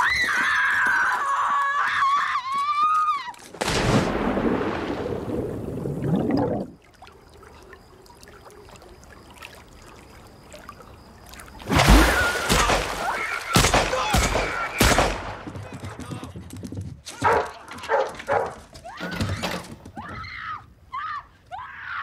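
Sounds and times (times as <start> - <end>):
water splashing in a pool: 3.6 - 14.6.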